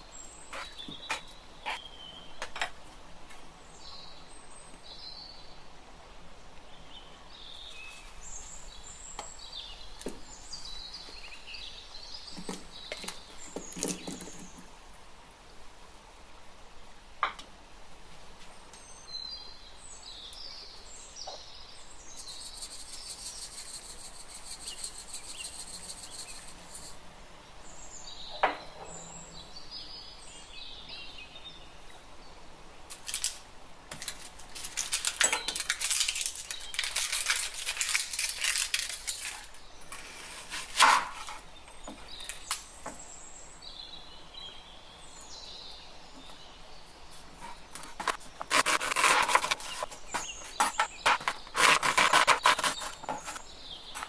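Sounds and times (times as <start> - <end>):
faint bird-like chirps: 18.7 - 27.0
onion skin rustling: 32.9 - 41.4, 47.8 - 53.4.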